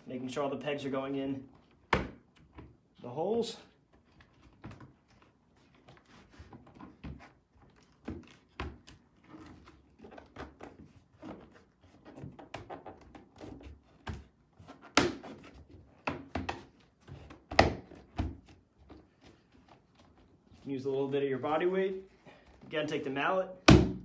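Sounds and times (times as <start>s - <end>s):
louder plastic thunks: 23.6s - 24.0s.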